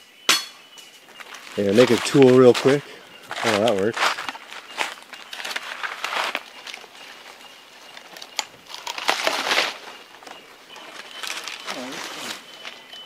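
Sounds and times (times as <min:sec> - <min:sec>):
leaves and branches rustling: 0:00.6 - 0:13.0.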